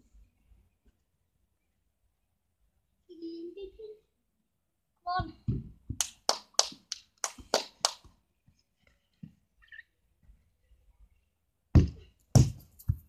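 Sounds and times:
football kicked with heavy thud: 11.8s - 13.0s.

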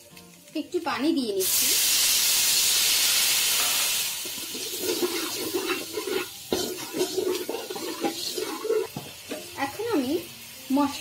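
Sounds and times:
paste sizzling and bubbling: 0.0s - 11.0s
water hissing in hot pan: 0.0s - 11.0s
metal spoon scraping pan: 3.6s - 9.5s.

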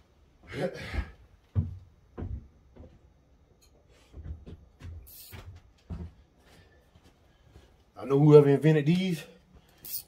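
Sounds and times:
short hiss: 5.1s - 5.4s.

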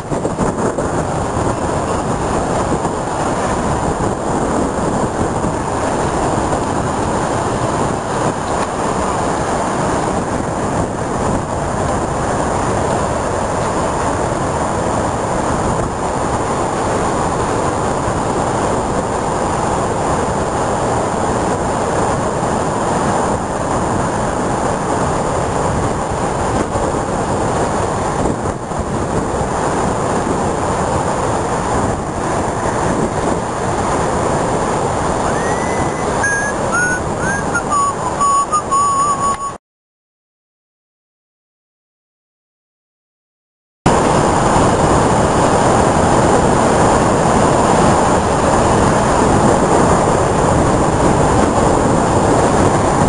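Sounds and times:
sea surf breaking against wall: 0.0s - 39.2s, 43.9s - 53.0s
wind buffeting microphone: 0.0s - 39.6s, 43.9s - 53.0s
faint wavering whistle tone: 35.2s - 39.6s.

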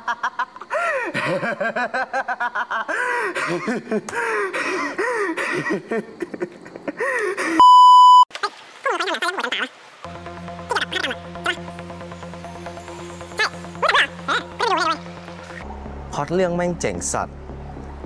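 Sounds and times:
man sobbing and wailing: 0.7s - 7.6s
high test-tone beep: 7.6s - 8.3s.

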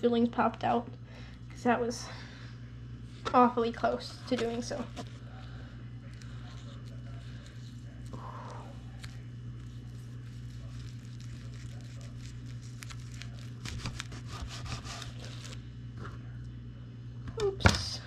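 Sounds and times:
steady low hum: 0.0s - 18.0s
seaweed wrapper crackling: 6.0s - 15.6s
knife sawing through sushi roll: 13.6s - 15.5s.

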